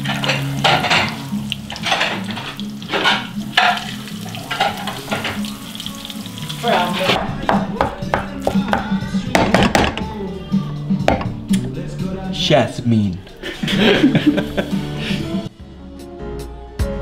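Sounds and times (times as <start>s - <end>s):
cutlets sizzling in oil: 0.0s - 7.2s.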